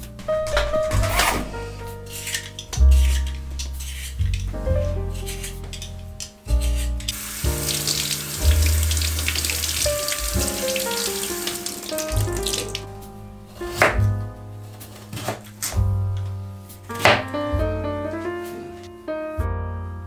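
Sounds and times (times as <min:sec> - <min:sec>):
background music with bass: 0:00.0 - 0:20.0
tap running into sink: 0:07.1 - 0:12.8.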